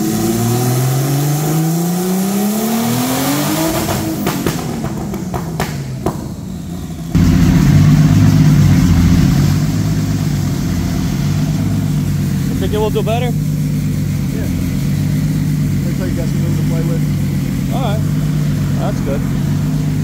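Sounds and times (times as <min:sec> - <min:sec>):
engine revving under load: 0:00.0 - 0:20.0
exhaust popping and crackling: 0:03.4 - 0:20.0
lumpy engine rumble: 0:04.5 - 0:20.0.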